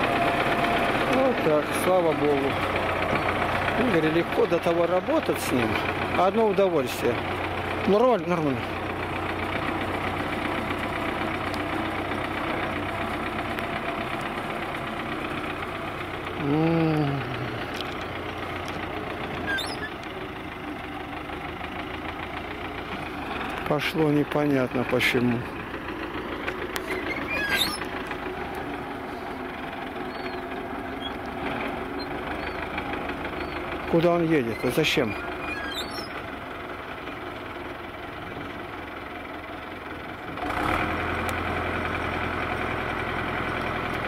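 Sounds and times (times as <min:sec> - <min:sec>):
tractor diesel engine running: 0:00.0 - 0:44.0
bird chirps: 0:19.4 - 0:20.0, 0:26.9 - 0:27.9, 0:30.1 - 0:31.2, 0:32.0 - 0:32.7, 0:33.4 - 0:33.7, 0:35.2 - 0:36.2.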